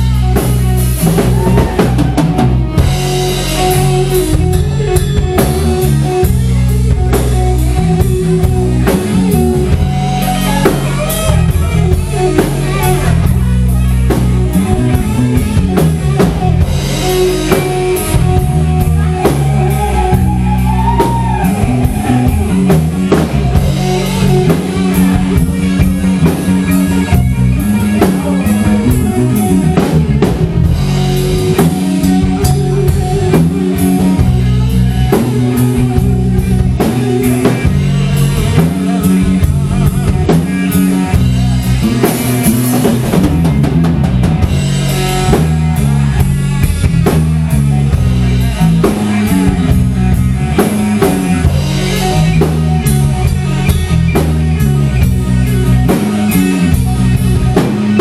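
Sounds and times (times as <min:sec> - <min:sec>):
drum kit beat: 0:00.0 - 0:58.0
guitar line bending in pitch: 0:00.0 - 0:58.0
rock band playing live: 0:00.0 - 0:58.0.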